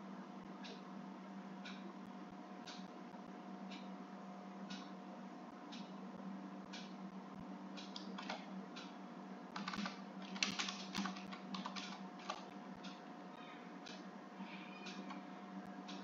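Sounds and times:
faint steady hum: 0.0s - 16.0s
computer keyboard typing: 7.8s - 8.4s, 9.6s - 12.5s.

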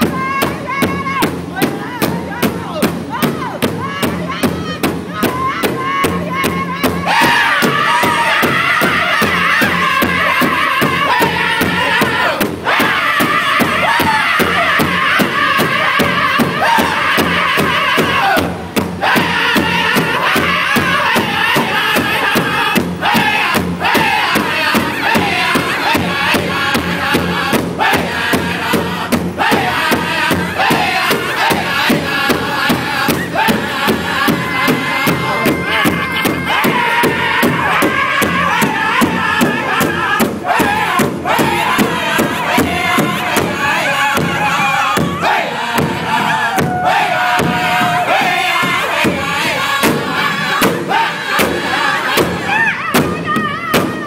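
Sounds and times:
big drum beat: 0.0s - 54.0s
group singing in unison: 5.2s - 53.2s.

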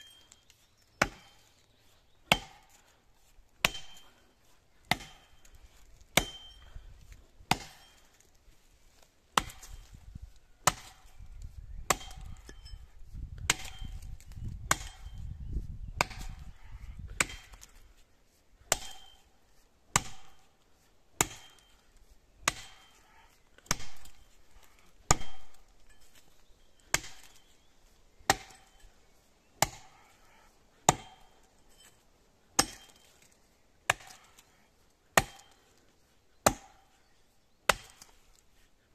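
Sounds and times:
axe chopping into tree: 1.0s - 1.5s, 2.3s - 2.8s, 3.6s - 4.1s, 4.9s - 6.7s, 7.4s - 8.2s, 9.3s - 10.0s, 10.6s - 11.2s, 11.8s - 12.6s, 13.4s - 15.3s, 16.0s - 17.8s, 18.6s - 19.2s, 19.9s - 20.5s, 21.2s - 21.8s, 22.4s - 23.0s, 23.6s - 26.2s, 26.8s - 27.5s, 28.2s - 28.8s, 29.6s - 30.2s, 30.8s - 34.5s, 35.1s - 35.6s, 36.4s - 37.0s, 37.7s - 38.2s.

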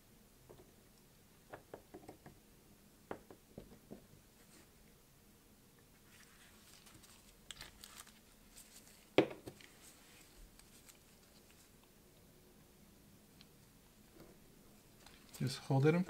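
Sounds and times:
faint rustles and light clicks: 5.8s - 12.3s, 13.3s - 16.0s.

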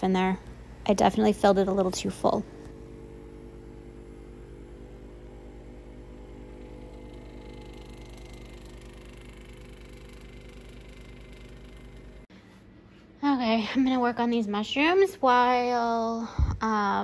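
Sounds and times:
vacuum pump humming with fast pulse: 0.0s - 13.1s.

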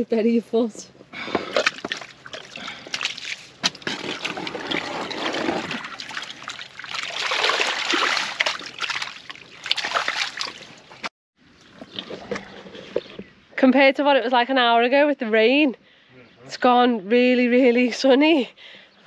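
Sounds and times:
water splashing and trickling: 1.4s - 13.1s
wet mud squelching: 1.4s - 13.1s.

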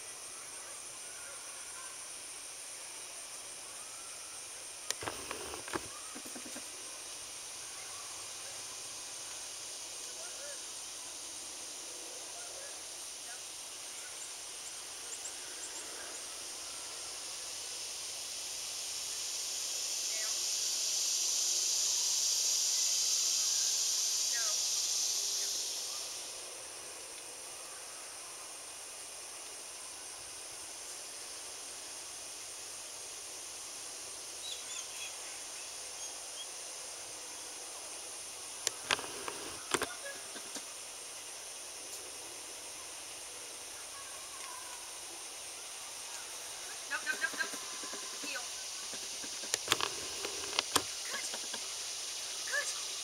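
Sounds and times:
steady high-pitched hiss: 0.0s - 53.0s
faint bird chirps: 34.4s - 36.6s.

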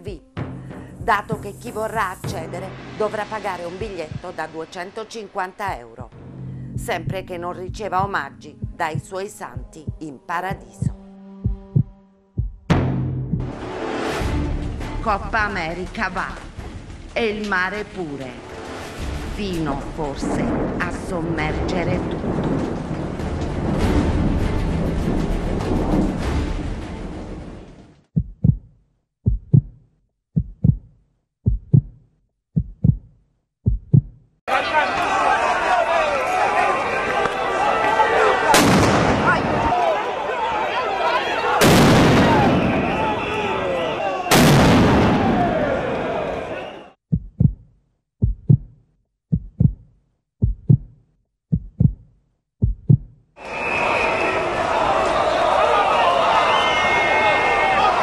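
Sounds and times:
music: 0.0s - 20.8s, 22.9s - 27.9s
heartbeat thumps: 0.4s - 2.5s, 3.8s - 4.5s, 5.7s - 13.6s, 28.2s - 29.8s, 30.4s - 32.0s, 32.6s - 34.2s, 47.1s - 53.2s
loud crowd noise: 34.5s - 46.9s, 53.4s - 58.0s.

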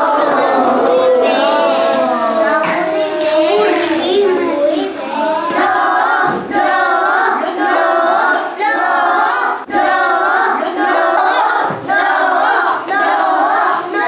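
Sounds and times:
children singing in chorus: 0.0s - 14.0s.

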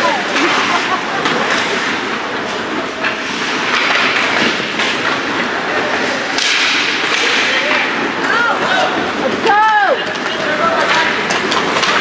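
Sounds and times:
hockey sticks and puck cracking: 0.0s - 12.0s
rink background noise: 0.0s - 12.0s.

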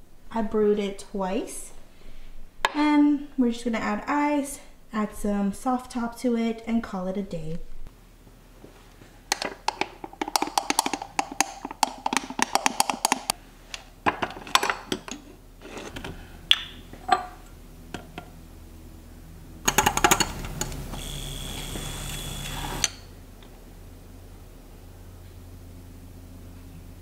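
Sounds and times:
electric frother whirring: 19.7s - 23.0s.

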